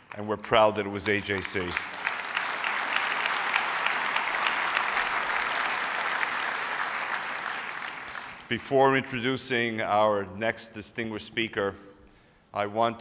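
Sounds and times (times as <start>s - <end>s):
audience applause: 1.0s - 8.5s.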